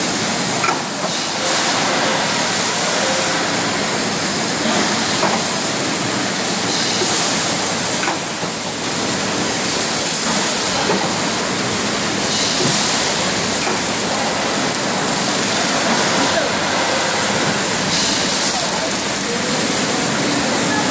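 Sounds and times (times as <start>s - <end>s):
packing line machine noise: 0.0s - 20.9s.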